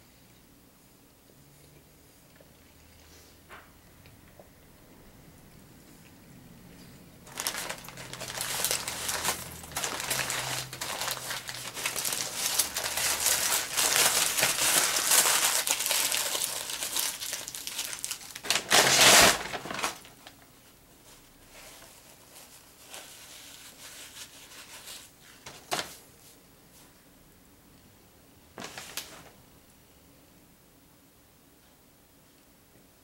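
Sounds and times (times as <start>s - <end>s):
paper crinkling and rustling: 7.2s - 26.9s, 28.6s - 29.4s.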